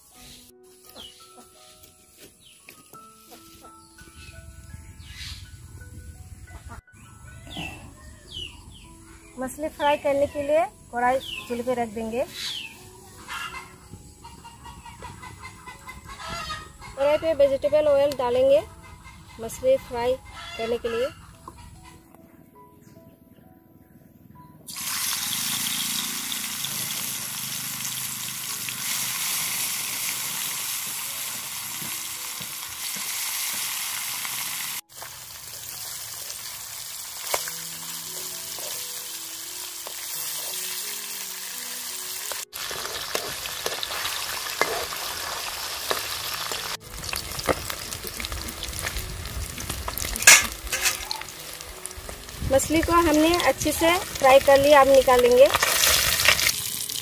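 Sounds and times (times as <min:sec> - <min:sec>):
fish sizzling in hot oil: 0:24.7 - 0:57.0.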